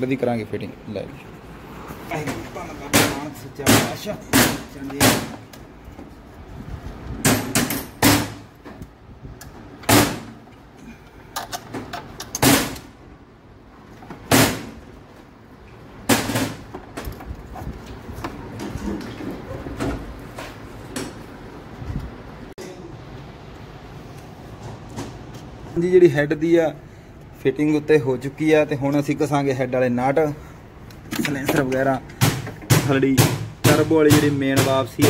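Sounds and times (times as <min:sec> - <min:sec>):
sharp metal knocks: 0:02.9 - 0:05.6, 0:07.2 - 0:08.5, 0:09.8 - 0:10.4, 0:32.1 - 0:35.0.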